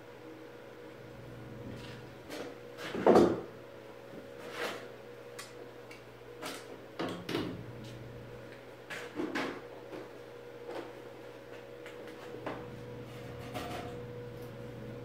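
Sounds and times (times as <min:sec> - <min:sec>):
steady low hum: 0:12.0 - 0:15.0.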